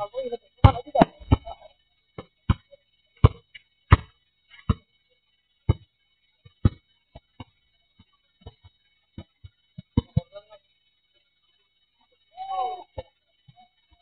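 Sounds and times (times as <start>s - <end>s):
basketball bouncing on asphalt: 2.2s - 4.9s, 5.7s - 10.2s.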